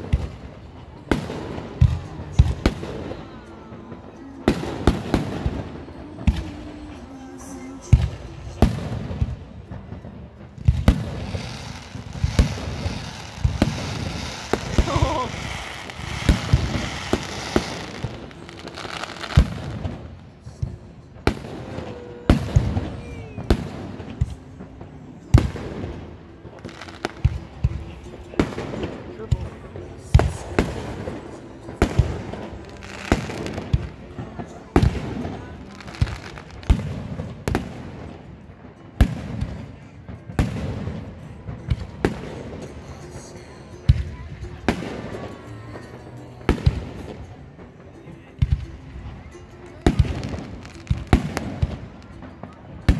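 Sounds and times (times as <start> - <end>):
soft fireworks pops: 0.0 - 52.9
fireworks bangs: 8.0 - 20.1.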